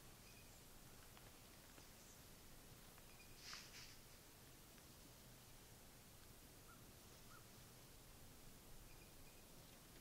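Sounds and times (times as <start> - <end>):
faint background hiss: 0.0 - 10.0
faint soft ticks: 4.7 - 4.9.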